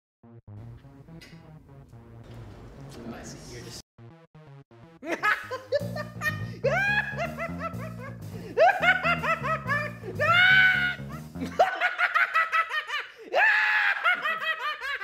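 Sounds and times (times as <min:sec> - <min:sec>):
background music: 0:00.3 - 0:12.8
man laughing loudly: 0:05.0 - 0:15.0.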